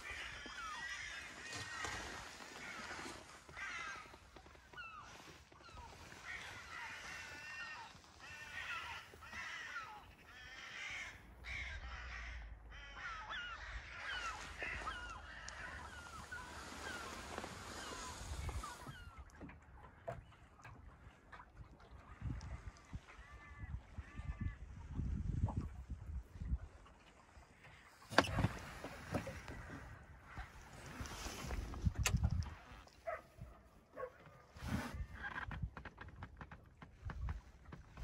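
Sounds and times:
many birds chirping: 0:11.7 - 0:19.2.

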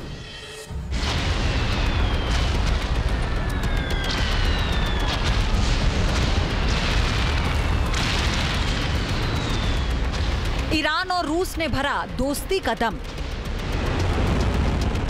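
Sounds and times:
heavy rumble of explosions: 0:00.7 - 0:15.0
sharp crackling pops: 0:01.0 - 0:11.2.

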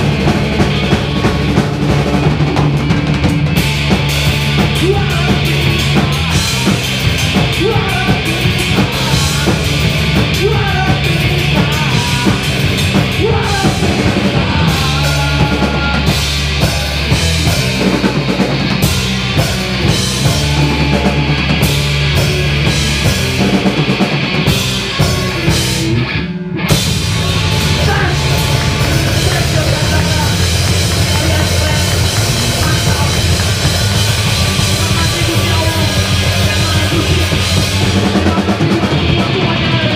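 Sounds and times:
drum kit: 0:00.0 - 0:39.9
electric guitar: 0:00.0 - 0:39.9
person singing into microphone: 0:10.3 - 0:18.0.

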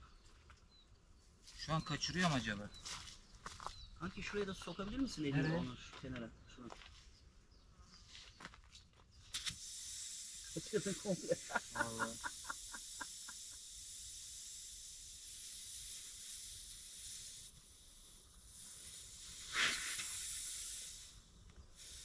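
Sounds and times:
air hissing from tyre: 0:09.3 - 0:22.0.

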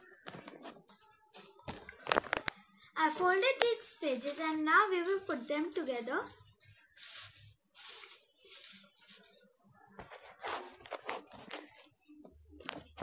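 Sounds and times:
paper sheets rustling: 0:03.4 - 0:11.9.

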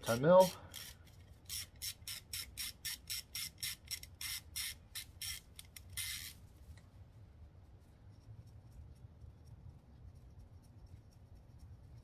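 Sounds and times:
ratchet clicking: 0:00.4 - 0:06.4.

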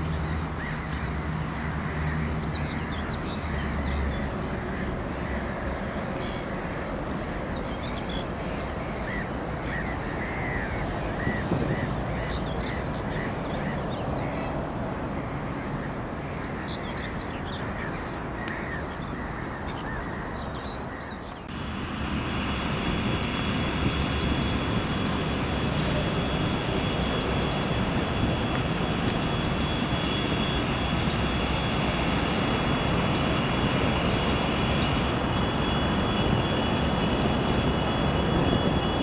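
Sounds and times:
diesel locomotive engine drone: 0:00.0 - 0:39.0
steady outdoor rush: 0:00.0 - 0:39.0
faint high whine: 0:21.5 - 0:39.0.

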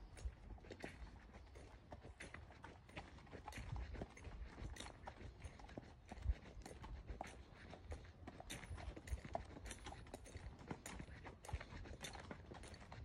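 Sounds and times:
footsteps walking: 0:00.0 - 0:13.0
horse hooves walking on dirt: 0:00.0 - 0:13.0.

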